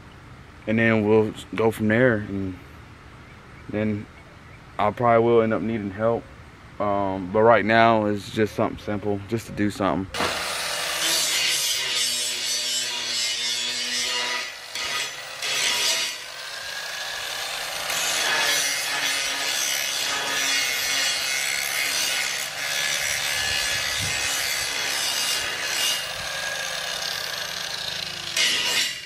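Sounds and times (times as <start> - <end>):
angle grinder grinding metal: 10.2 - 29.0.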